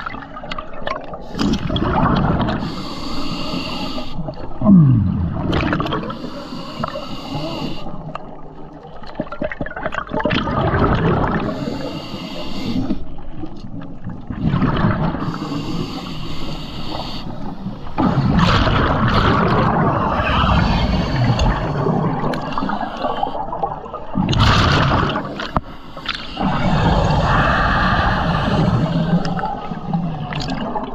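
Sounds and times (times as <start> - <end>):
gurgling exhaled bubbles: 0.0 - 2.7, 4.4 - 6.3, 9.0 - 11.8, 13.9 - 15.6, 17.9 - 30.9
hissing regulator inhalations: 2.6 - 4.2, 6.0 - 8.0, 11.4 - 13.1, 15.2 - 18.0, 20.1 - 23.4.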